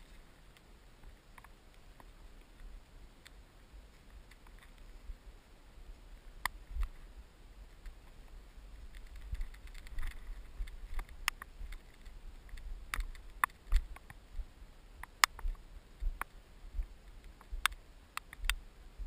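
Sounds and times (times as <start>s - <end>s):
steady low rumble: 0.0s - 19.0s
sharp clicks and taps: 15.0s - 18.6s.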